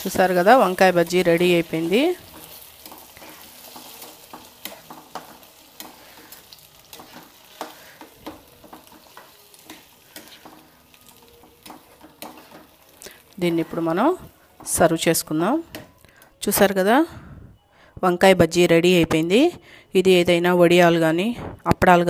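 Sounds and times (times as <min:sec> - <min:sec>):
spatula scraping a frying pan: 0:00.0 - 0:14.8
soft frying sizzle: 0:00.0 - 0:16.0
spatula tapping a pan: 0:00.4 - 0:13.3.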